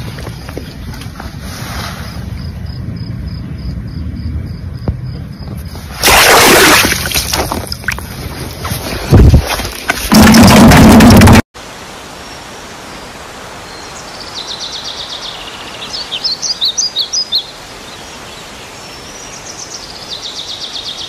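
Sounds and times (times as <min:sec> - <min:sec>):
wind rumble on microphone: 0:00.0 - 0:06.0, 0:07.1 - 0:11.4
water splashing: 0:05.9 - 0:11.4.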